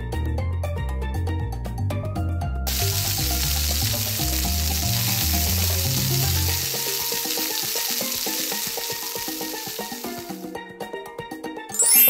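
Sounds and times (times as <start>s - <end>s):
background music: 0.0s - 12.0s
frying sizzle: 2.7s - 10.6s.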